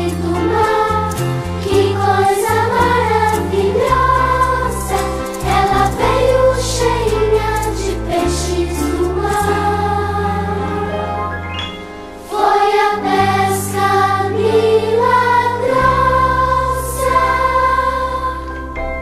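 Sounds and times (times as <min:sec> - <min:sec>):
group singing religious song: 0:00.0 - 0:11.0, 0:12.2 - 0:18.6
instrumental backing with bass: 0:00.0 - 0:19.0.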